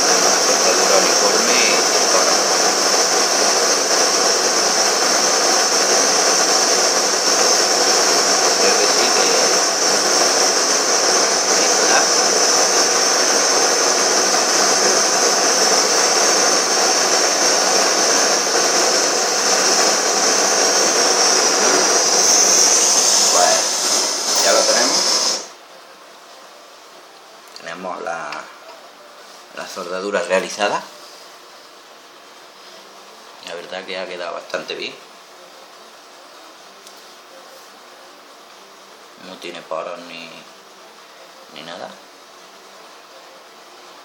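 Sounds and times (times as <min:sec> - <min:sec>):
blowtorch flame hissing: 0:00.0 - 0:25.6.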